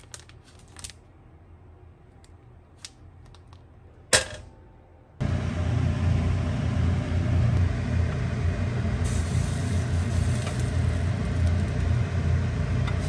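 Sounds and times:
plastic wrapper crinkling: 0:00.0 - 0:01.0.

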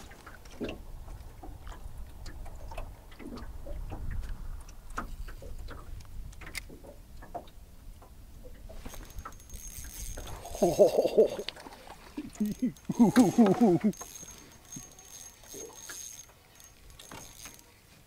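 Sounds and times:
fishing reel clicking: 0:08.9 - 0:11.6, 0:12.3 - 0:17.7.

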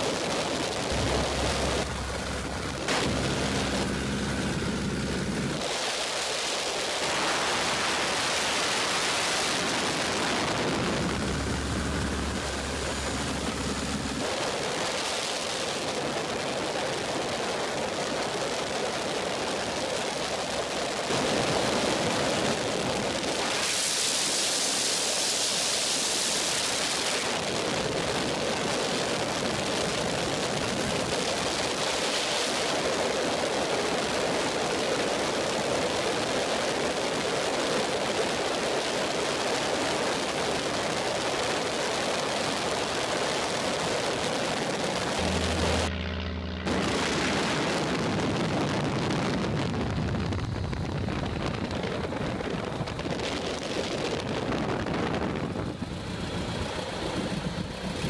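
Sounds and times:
wind rushing: 0:00.0 - 0:06.0
aircraft engine hum: 0:00.0 - 0:37.2, 0:37.8 - 0:58.0.

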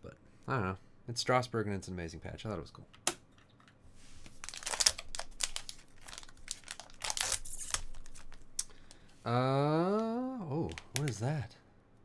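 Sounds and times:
foil pouch crinkling and tearing: 0:04.3 - 0:09.0.

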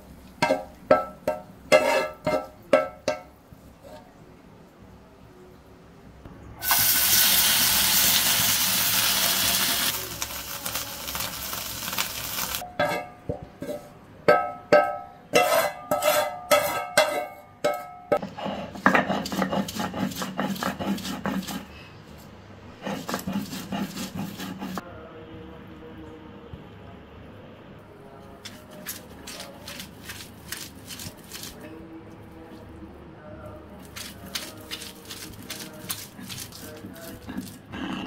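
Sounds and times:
spatula striking metal pan: 0:00.4 - 0:03.3, 0:14.3 - 0:18.2
fish sizzling in a pan: 0:06.6 - 0:12.6
rubbing on stone grinding slab: 0:18.2 - 0:21.7, 0:22.8 - 0:24.8.

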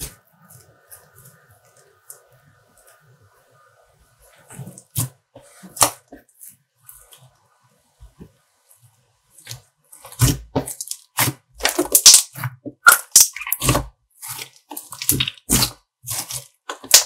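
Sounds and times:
slime crackling and popping: 0:10.0 - 0:17.0.

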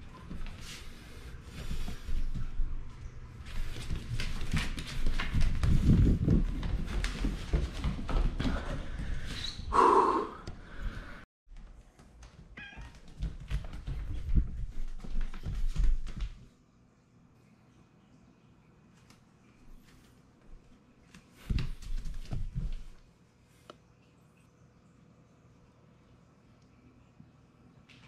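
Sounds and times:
footsteps: 0:00.0 - 0:09.6, 0:10.8 - 0:16.5, 0:19.6 - 0:23.0
cat meowing: 0:12.6 - 0:13.0.

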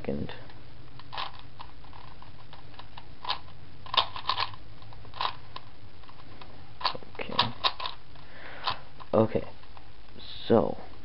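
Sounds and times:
puzzle cube plastic clacks: 0:01.0 - 0:08.0.

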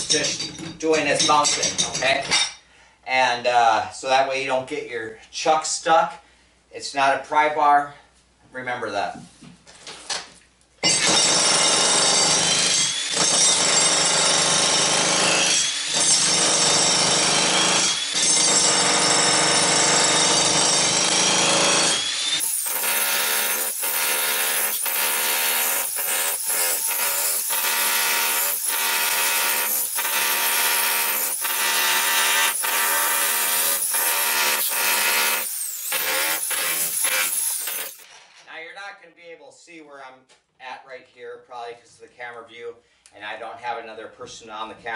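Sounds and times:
jackhammer chiselling concrete: 0:10.9 - 0:38.0.

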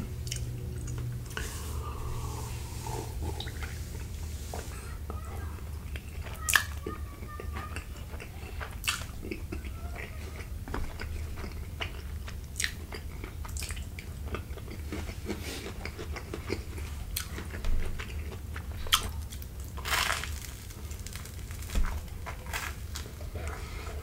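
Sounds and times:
steady low hum: 0:00.0 - 0:06.3
wet chewing and slurping noodles: 0:00.2 - 0:04.9, 0:07.3 - 0:24.0.

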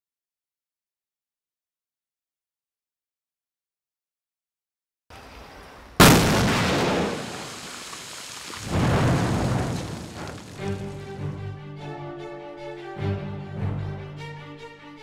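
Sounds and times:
rock blast explosion: 0:06.0 - 0:11.0
background music: 0:10.6 - 0:15.0.

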